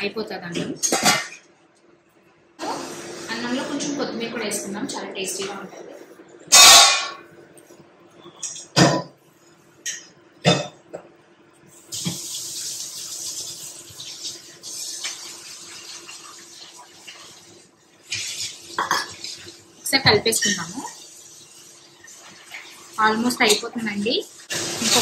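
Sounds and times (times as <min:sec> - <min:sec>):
water running: 0:02.6 - 0:06.1, 0:11.8 - 0:25.0.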